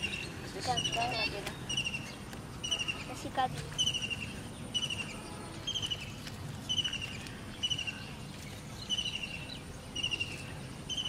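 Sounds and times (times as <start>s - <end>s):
faint outdoor background: 0.0s - 11.0s
high chirping call: 0.0s - 11.0s.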